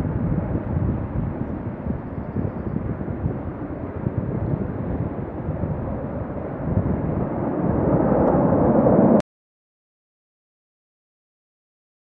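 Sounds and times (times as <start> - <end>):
jet engines at takeoff: 0.0 - 9.2.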